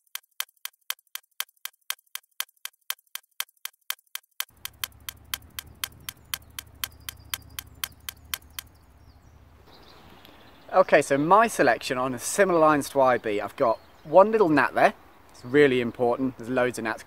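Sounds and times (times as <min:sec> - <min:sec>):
countdown timer ticking: 0:00.0 - 0:08.7
faint outdoor background: 0:00.0 - 0:17.0.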